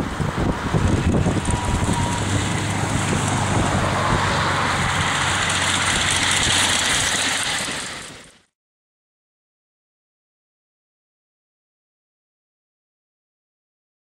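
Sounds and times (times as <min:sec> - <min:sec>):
low hum: 0:00.0 - 0:08.4
miniature steam train rumbling past: 0:00.0 - 0:08.5.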